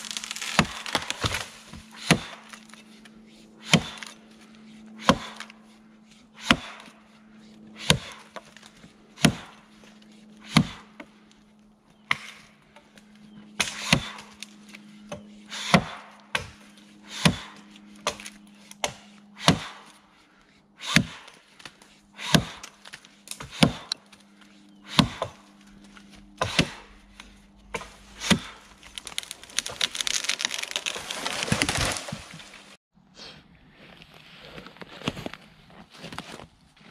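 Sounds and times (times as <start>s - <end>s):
tree falling through branches: 0.0s - 2.8s, 27.7s - 32.8s
axe chopping tree trunk: 0.0s - 2.9s, 3.6s - 4.2s, 5.0s - 5.6s, 6.4s - 7.0s, 7.8s - 9.6s, 10.4s - 11.1s, 12.1s - 12.5s, 13.6s - 20.0s, 20.8s - 32.7s.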